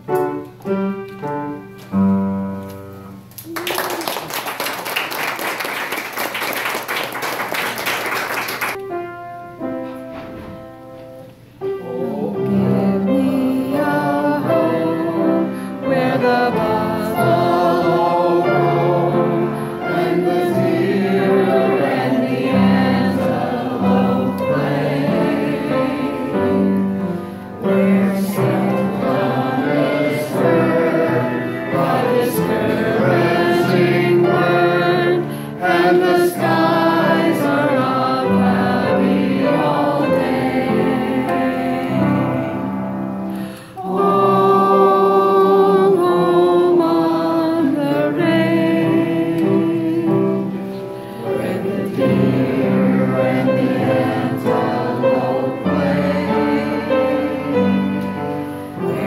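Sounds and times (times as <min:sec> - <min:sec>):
upright piano: 0:00.0 - 0:59.0
group of voices singing: 0:11.8 - 0:59.0.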